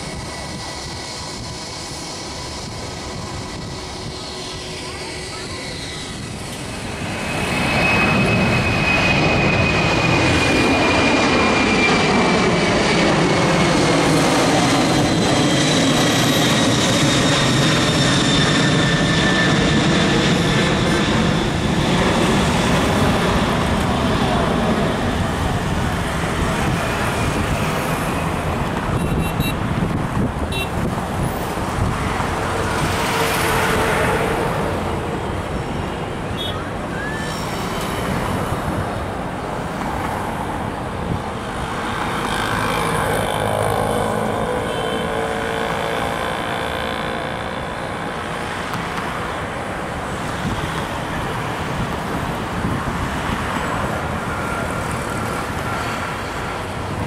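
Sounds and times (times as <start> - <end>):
high jet fan whine: 0.0 - 57.0
jet engines roaring overhead: 0.0 - 57.0.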